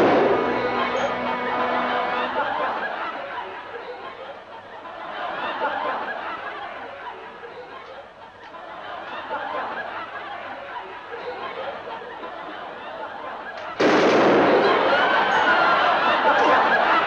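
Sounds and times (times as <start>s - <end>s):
audience laughter: 0.0s - 17.0s.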